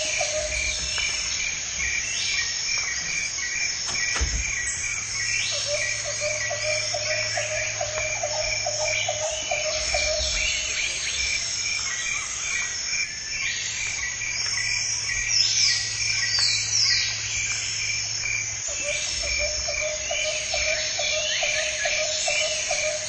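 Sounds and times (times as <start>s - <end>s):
frog-like pulsed calls: 0.0s - 1.4s, 5.0s - 12.8s, 13.9s - 23.0s
insects trilling: 0.0s - 23.0s.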